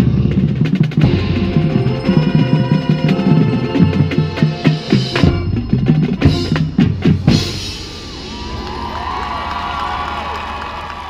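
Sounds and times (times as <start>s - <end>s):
marching band drums and percussion: 0.0s - 10.4s
crowd cheering and applause: 8.0s - 11.0s.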